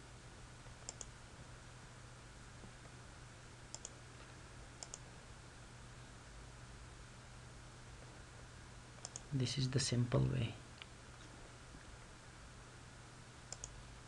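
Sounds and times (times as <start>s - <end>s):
faint low hum: 0.0s - 14.0s
computer mouse clicking: 0.8s - 1.1s, 3.7s - 4.0s, 4.8s - 5.0s, 9.0s - 9.3s, 13.5s - 13.8s.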